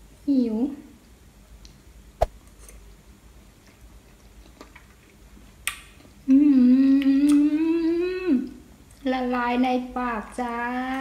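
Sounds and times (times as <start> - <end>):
chewing with mouth clicks: 3.6 - 6.2
woman humming with mouth full: 6.3 - 8.4.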